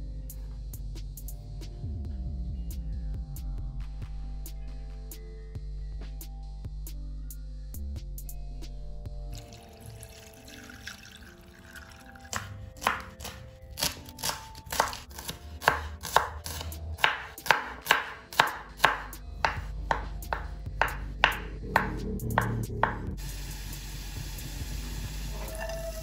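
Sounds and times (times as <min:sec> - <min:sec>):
knife chopping on wooden board: 0:12.3 - 0:23.0.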